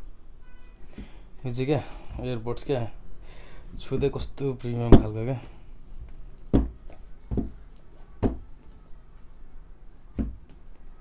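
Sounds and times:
knocks on a box: 6.5s - 7.6s, 10.2s - 10.4s.

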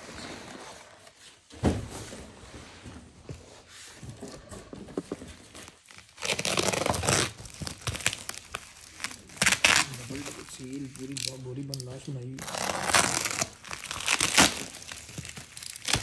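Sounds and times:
thump: 1.5s - 2.2s
plastic crinkling: 5.0s - 16.0s
packing tape ripping: 5.6s - 16.0s.

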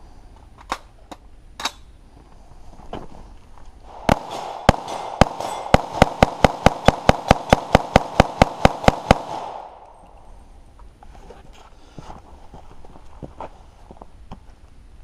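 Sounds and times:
pistol shots: 3.9s - 10.0s.

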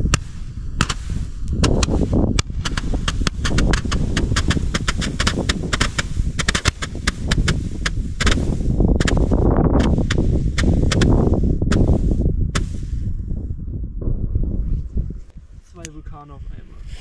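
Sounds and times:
firework cracks and pops: 0.0s - 13.0s
low rushing noise: 0.0s - 16.7s.

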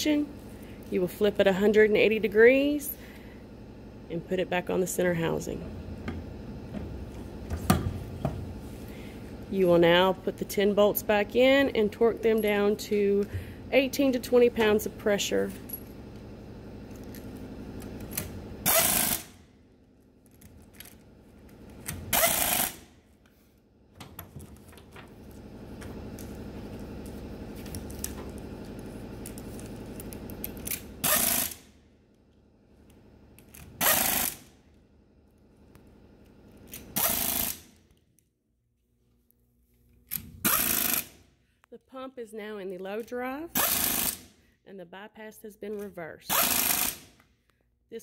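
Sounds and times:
pneumatic ratchet running: 18.0s - 19.4s, 22.0s - 22.9s, 30.6s - 31.7s, 33.5s - 34.6s, 36.7s - 37.8s, 40.1s - 41.2s, 43.5s - 44.4s, 46.3s - 47.2s.

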